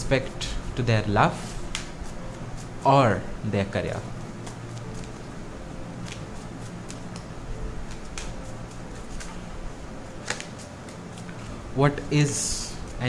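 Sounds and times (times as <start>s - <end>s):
faint steady hum: 0.0s - 13.0s
cards being shuffled: 1.6s - 2.9s, 4.4s - 5.3s, 6.0s - 9.4s, 10.1s - 11.6s.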